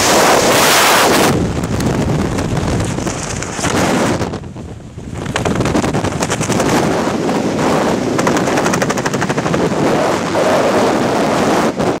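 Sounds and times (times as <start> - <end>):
rushing air: 0.0 - 12.0
fast fluttering rattle: 2.3 - 4.0, 5.2 - 10.2.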